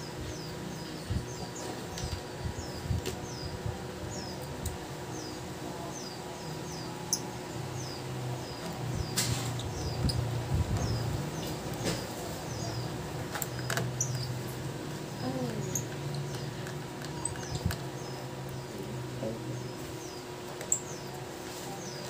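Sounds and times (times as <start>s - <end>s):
small bird chirping: 5.1s - 22.0s.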